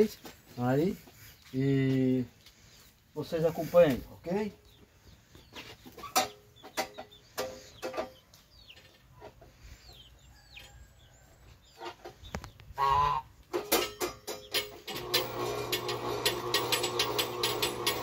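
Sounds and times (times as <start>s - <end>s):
chickens clucking: 4.6s - 14.8s.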